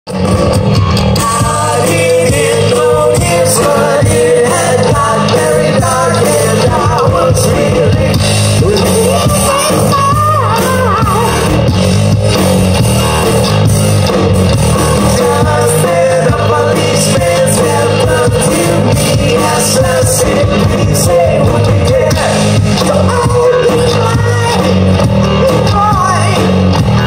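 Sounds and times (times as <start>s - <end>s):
live rock band playing: 0.1s - 27.0s
person singing: 1.2s - 11.6s, 14.6s - 24.8s.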